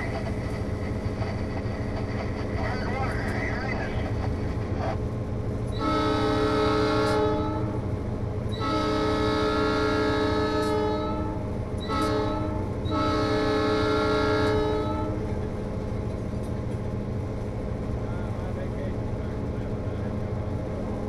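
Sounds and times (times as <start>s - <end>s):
low engine rumble: 0.0s - 21.0s
train chord horn blowing: 5.8s - 7.9s, 8.5s - 15.4s.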